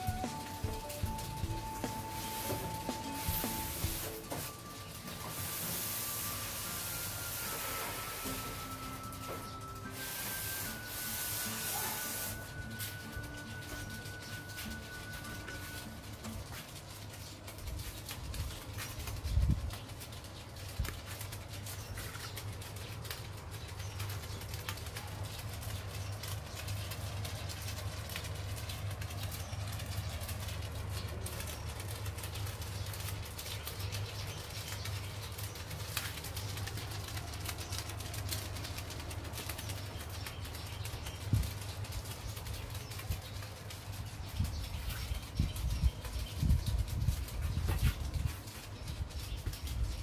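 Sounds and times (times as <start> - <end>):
air rushing from vents: 0.0 - 21.7
fan motor hum: 0.0 - 50.0
tape strips fluttering: 0.0 - 50.0.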